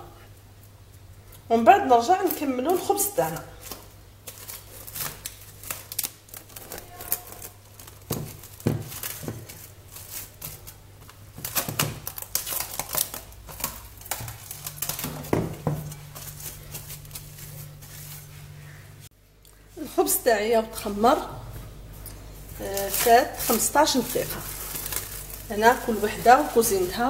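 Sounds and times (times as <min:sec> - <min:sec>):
cling film crinkling: 0:00.6 - 0:18.8, 0:21.9 - 0:27.0.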